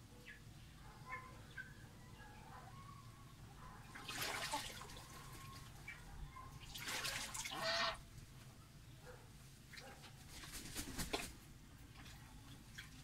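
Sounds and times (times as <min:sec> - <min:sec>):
faint soft goose calls: 0:07.5 - 0:08.0.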